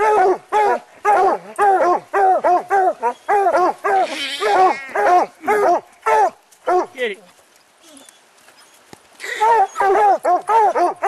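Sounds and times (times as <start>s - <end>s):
dogs barking rapidly: 0.0s - 7.0s, 9.4s - 11.0s.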